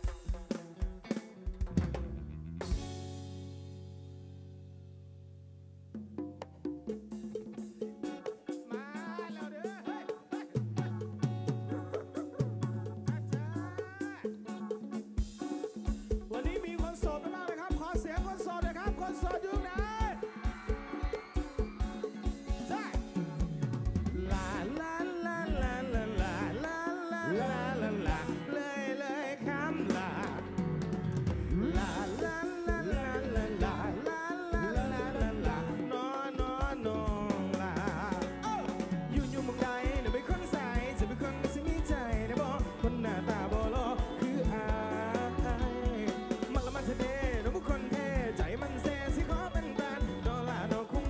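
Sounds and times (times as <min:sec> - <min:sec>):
drum and percussion hits: 0:00.0 - 0:03.3, 0:06.1 - 0:25.0, 0:36.4 - 0:51.0
live band music: 0:00.0 - 0:51.0
man singing: 0:08.5 - 0:14.5, 0:16.3 - 0:20.9, 0:22.2 - 0:51.0.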